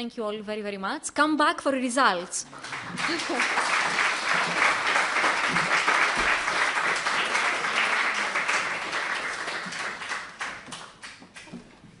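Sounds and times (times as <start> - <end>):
audience applauding: 2.4 - 11.6.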